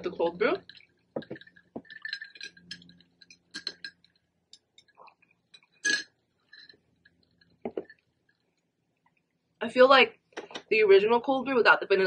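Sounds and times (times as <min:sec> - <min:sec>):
metal straw clinking ice in glass: 0:00.3 - 0:08.0.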